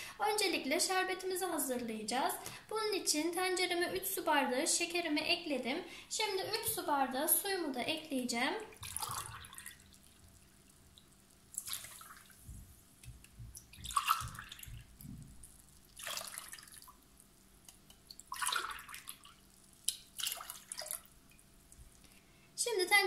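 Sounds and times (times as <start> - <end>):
water pouring and splashing: 8.7 - 12.6, 13.5 - 17.3, 18.0 - 22.0.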